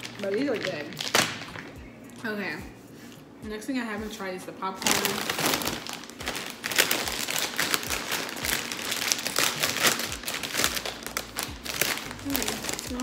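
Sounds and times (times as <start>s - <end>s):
plastic bag crinkling: 0.0s - 1.8s, 4.7s - 13.0s.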